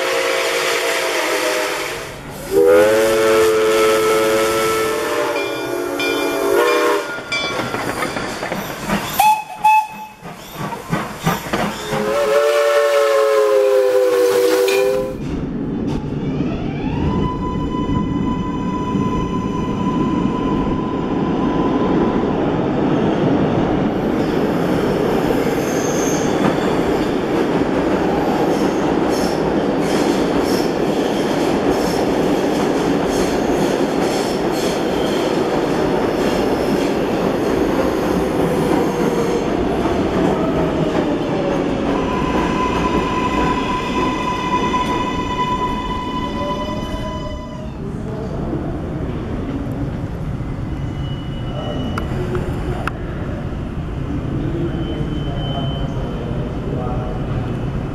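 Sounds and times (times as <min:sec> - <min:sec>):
high train whine: 0:00.0 - 0:57.9
wheels rumbling on rail: 0:00.0 - 0:57.9.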